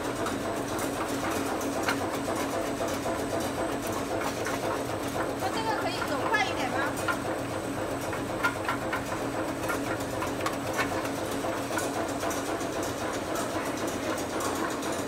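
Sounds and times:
machine clicking and clattering: 0:00.2 - 0:15.0.

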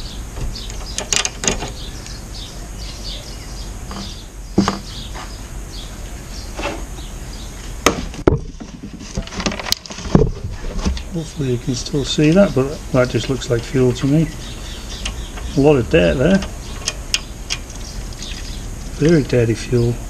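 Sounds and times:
hand tools clicking on metal parts: 0:15.0 - 0:15.6, 0:16.2 - 0:18.3.

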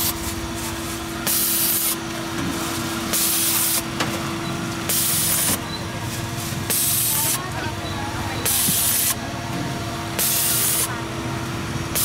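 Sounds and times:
loud hissing bursts: 0:10.2 - 0:10.9.

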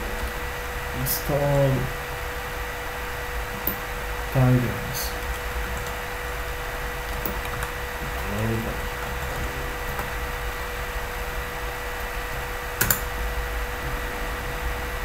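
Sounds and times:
electrical hum: 0:00.0 - 0:15.0
microphone hiss: 0:00.0 - 0:15.0
computer keyboard clicks: 0:12.8 - 0:13.1.

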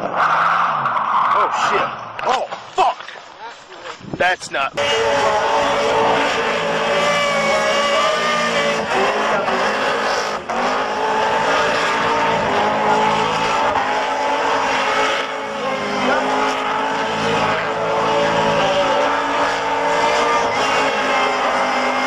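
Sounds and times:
car engine revving high: 0:04.7 - 0:22.0.

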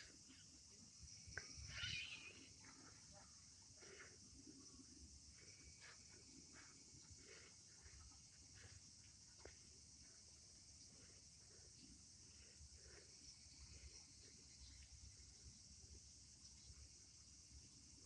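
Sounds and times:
high insect chirring: 0:00.0 - 0:03.1.

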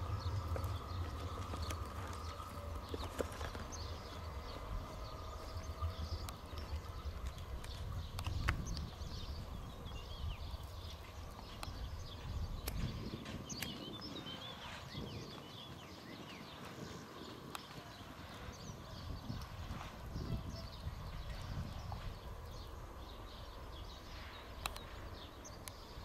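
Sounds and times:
birds chirping: 0:00.0 - 0:26.0
train rumbling: 0:00.0 - 0:26.0
wheels clicking over rail joints: 0:00.0 - 0:26.0.

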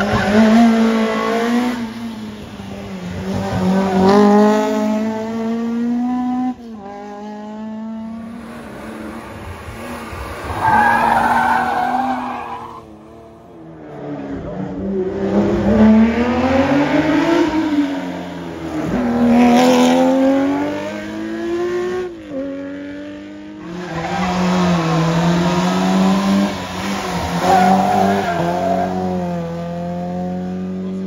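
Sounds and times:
car engine revving hard: 0:15.1 - 0:30.8.

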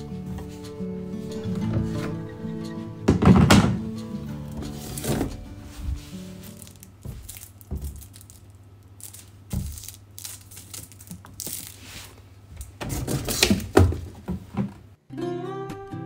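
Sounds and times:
plastic bottle knocking and rustling: 0:03.1 - 0:03.9, 0:04.6 - 0:10.0, 0:12.7 - 0:14.9
plastic clattering: 0:03.1 - 0:11.8.

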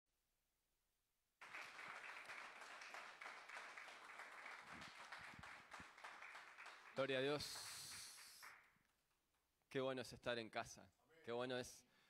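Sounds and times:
congregation applauding: 0:01.4 - 0:08.7.

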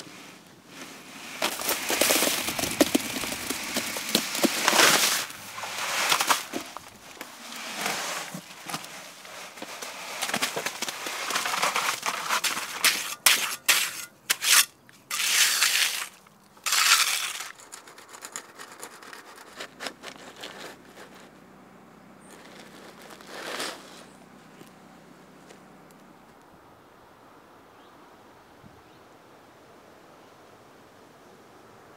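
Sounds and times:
steel trowel scraping concrete: 0:01.4 - 0:21.3, 0:22.3 - 0:24.2.

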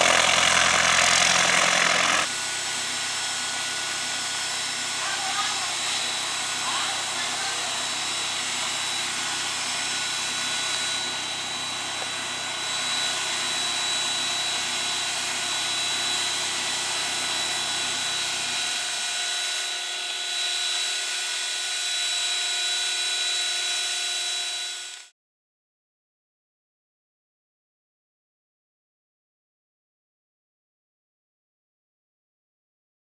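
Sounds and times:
piston aircraft engine running: 0:00.0 - 0:25.1.

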